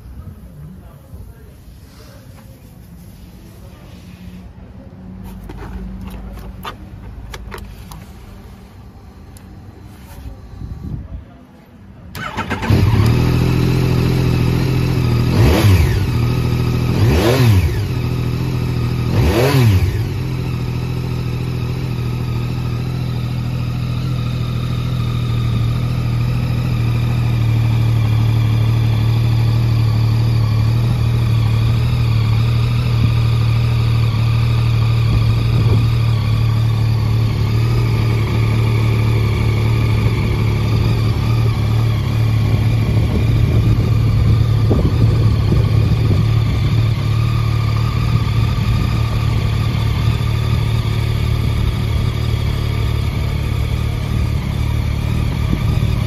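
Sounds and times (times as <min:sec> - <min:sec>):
motorcycle engine idling: 0:12.0 - 0:56.0
motorcycle engine revving: 0:12.1 - 0:56.0.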